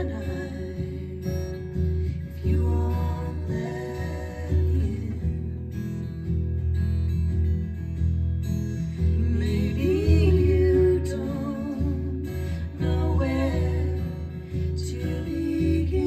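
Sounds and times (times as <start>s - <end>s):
women singing with vibrato: 0.0s - 5.7s, 9.0s - 16.0s
acoustic guitar: 0.0s - 16.0s.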